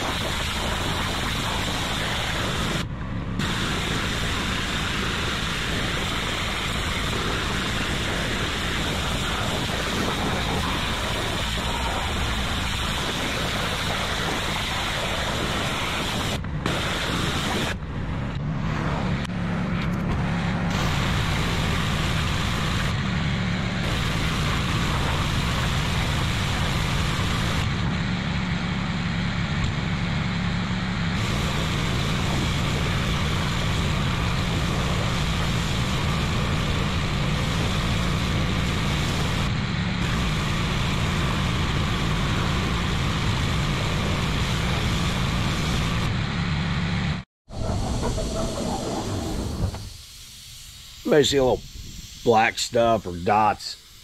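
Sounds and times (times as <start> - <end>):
pressure washer spraying: 0.0 - 17.8, 20.7 - 23.0, 23.8 - 27.7, 31.2 - 46.0, 47.7 - 54.0.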